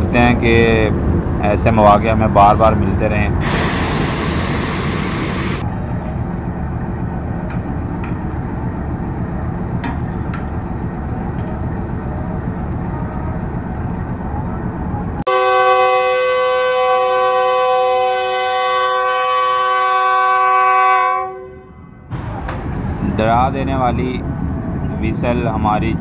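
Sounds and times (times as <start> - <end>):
diesel locomotive rumbling: 0.0 - 26.0
locomotive horn chord: 15.3 - 22.6.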